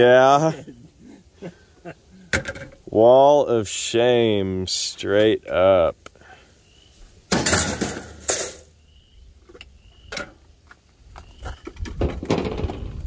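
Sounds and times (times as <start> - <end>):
rumble of things being moved: 7.0 - 13.0
metal junk scraping: 7.3 - 8.7.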